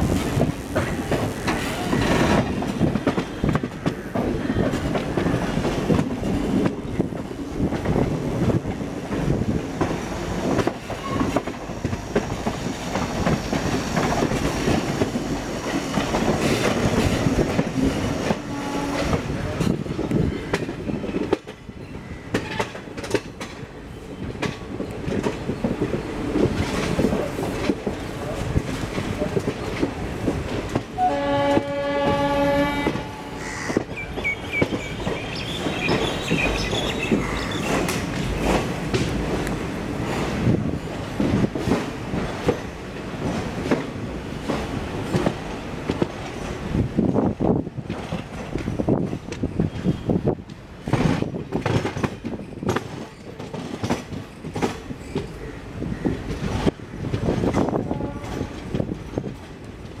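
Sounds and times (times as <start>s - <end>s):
train wheels clattering over rail joints: 0.1s - 21.7s, 22.3s - 60.0s
train horn: 18.2s - 19.3s, 31.0s - 33.7s, 57.6s - 58.8s
train wheels knocking over rail joints: 50.8s - 55.4s.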